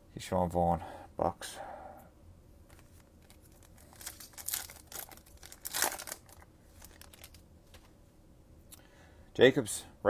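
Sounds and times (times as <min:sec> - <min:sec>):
foil wrapper crinkling and tearing: 0:03.2 - 0:07.4.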